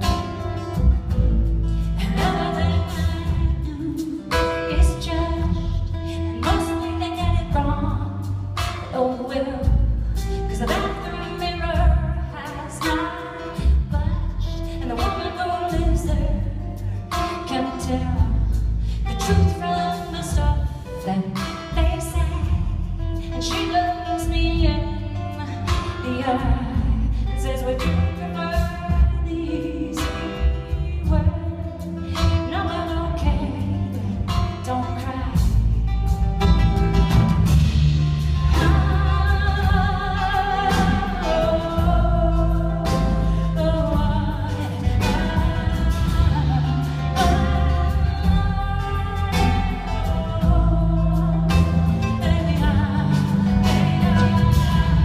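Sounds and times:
acoustic guitar: 0.0s - 55.0s
bass: 0.0s - 55.0s
drums: 0.0s - 55.0s
person singing: 1.9s - 18.4s, 38.2s - 55.0s.

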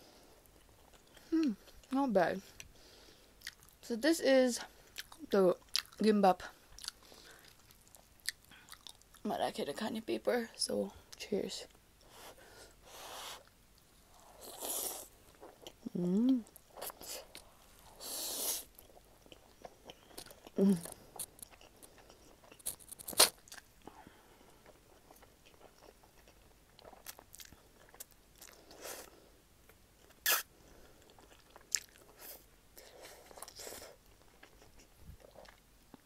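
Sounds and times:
wet chewing with mouth clicks: 3.4s - 3.8s, 4.9s - 6.0s, 6.7s - 9.2s, 14.5s - 23.9s, 24.5s - 29.1s, 29.7s - 36.0s.

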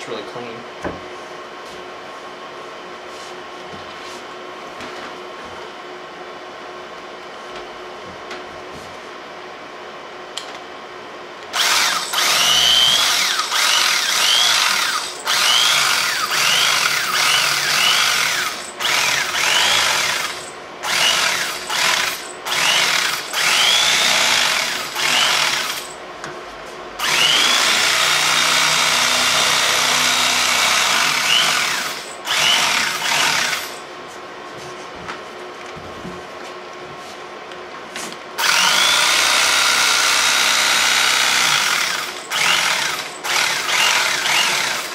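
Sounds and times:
electric carving knife whine: 11.5s - 26.0s, 27.0s - 33.8s, 38.4s - 44.9s.

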